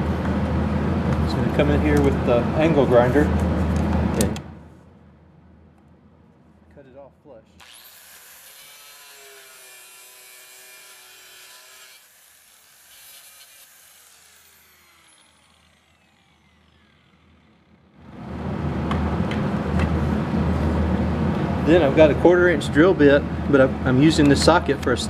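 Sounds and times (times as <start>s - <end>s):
steady machine hum: 0.0s - 7.6s, 14.3s - 25.0s
angle grinder whining: 7.6s - 18.1s.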